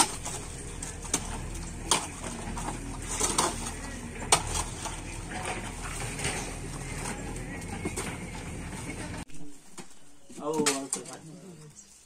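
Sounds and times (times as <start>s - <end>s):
mud scraping: 0.0s - 9.2s.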